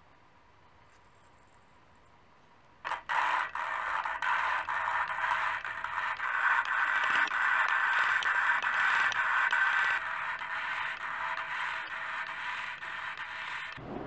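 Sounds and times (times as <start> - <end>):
valve lapping gritty scraping: 2.9 - 13.8.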